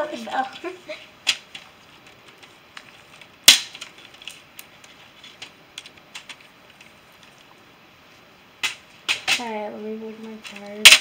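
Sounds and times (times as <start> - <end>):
plastic tiles clacking: 0.5 - 7.5, 10.2 - 11.0.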